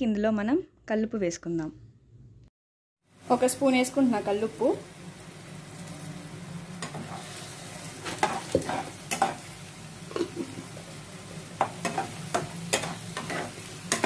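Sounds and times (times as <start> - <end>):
paste sizzling in oil: 3.1 - 14.0
spatula scraping a pan: 6.8 - 9.4, 11.6 - 14.0.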